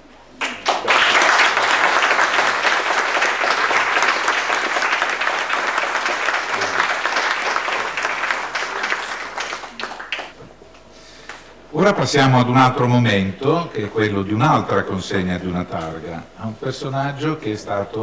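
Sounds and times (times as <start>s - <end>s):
audience applauding: 0.4s - 10.4s.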